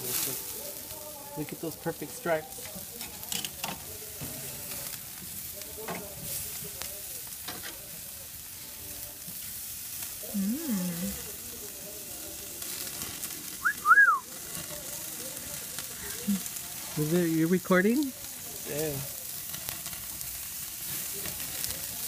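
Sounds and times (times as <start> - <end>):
chicken sizzling on a grill: 0.0 - 22.0
rising and falling whistle: 13.6 - 14.2.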